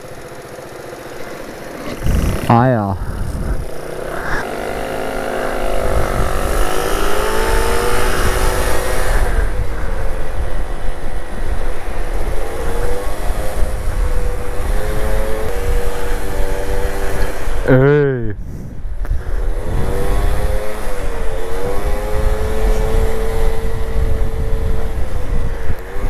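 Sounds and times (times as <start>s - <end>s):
scooter engine pulling away: 0.0s - 2.5s, 3.1s - 17.6s
wind rumbling on microphone: 1.9s - 17.7s, 18.3s - 26.0s.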